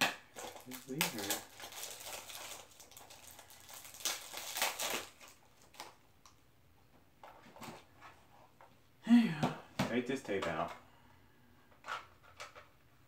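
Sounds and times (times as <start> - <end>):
cellophane crinkling and tearing: 0.3 - 6.0.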